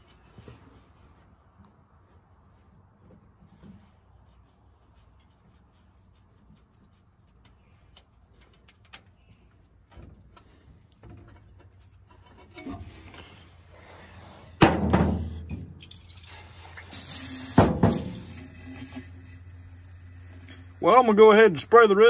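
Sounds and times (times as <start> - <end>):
aerosol can spraying: 16.2 - 22.0.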